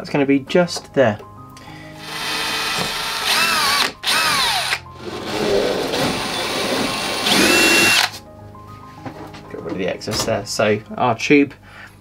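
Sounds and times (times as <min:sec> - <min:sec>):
electric drill motor whine: 0:02.0 - 0:04.8, 0:05.9 - 0:08.2.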